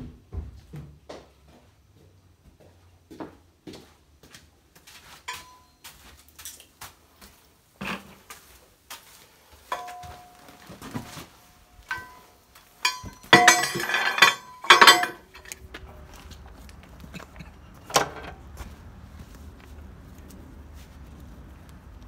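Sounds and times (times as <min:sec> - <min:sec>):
metal-on-metal clanking and ringing: 0:05.3 - 0:05.7, 0:09.7 - 0:10.6, 0:11.8 - 0:15.6
metal tools clinking: 0:05.3 - 0:05.8, 0:09.7 - 0:11.0, 0:11.8 - 0:15.7, 0:17.2 - 0:18.4.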